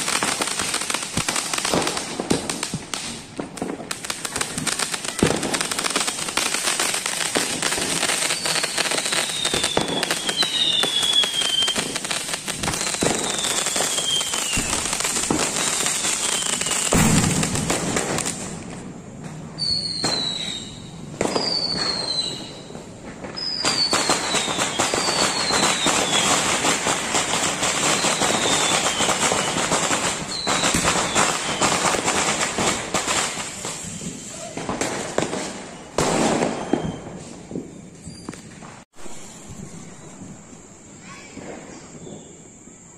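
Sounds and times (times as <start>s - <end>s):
falling firework whistles: 0.0s - 42.9s
fireworks crackling: 0.0s - 42.9s
loud firework bang: 12.6s - 15.7s, 16.6s - 24.3s.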